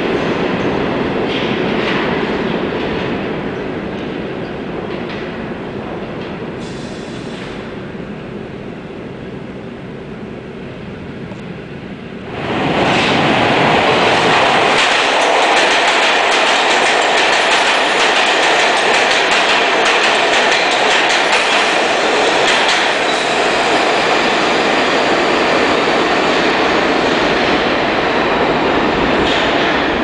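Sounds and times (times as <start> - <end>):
subway train rumbling in tunnel: 0.0 - 30.0
train wheels clattering: 12.9 - 27.7.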